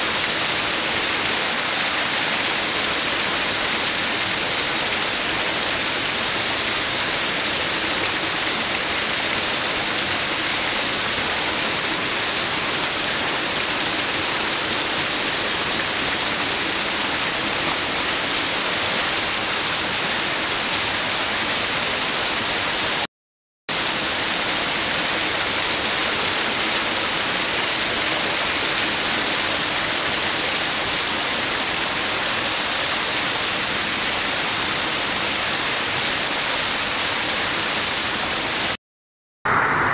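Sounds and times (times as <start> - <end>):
waterfall rushing: 0.0 - 23.1, 23.8 - 38.8.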